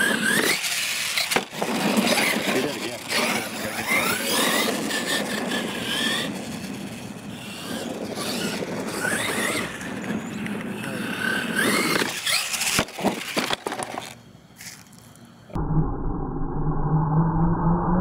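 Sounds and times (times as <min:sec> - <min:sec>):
electric motor whining: 0:00.0 - 0:14.2
tyres churning through dirt: 0:00.0 - 0:15.0.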